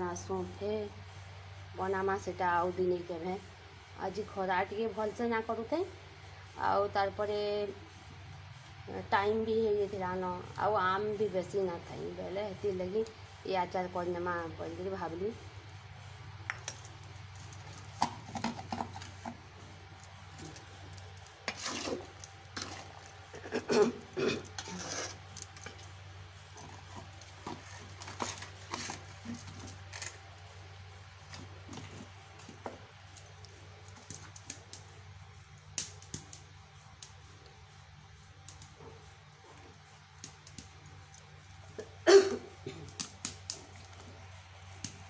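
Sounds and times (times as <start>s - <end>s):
steady low hum: 0.0s - 45.0s
metal spatula scraping a bowl: 21.5s - 22.9s, 24.6s - 25.2s.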